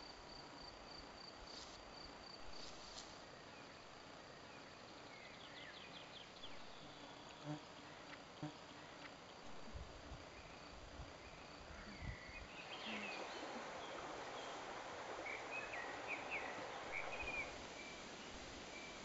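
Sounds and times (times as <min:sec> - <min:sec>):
steady hiss: 0:00.0 - 0:19.0
small birds chirping: 0:10.3 - 0:19.0.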